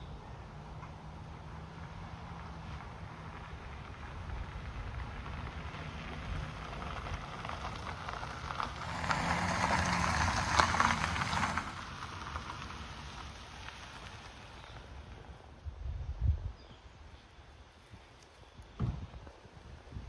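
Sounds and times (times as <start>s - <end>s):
low engine hum: 0.0s - 20.0s
tyres crunching over gravel: 4.9s - 14.8s.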